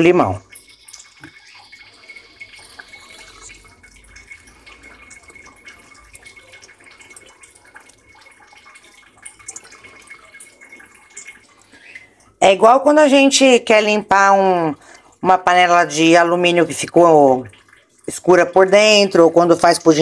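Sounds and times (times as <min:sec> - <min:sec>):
juice dripping into water: 0:00.0 - 0:20.0.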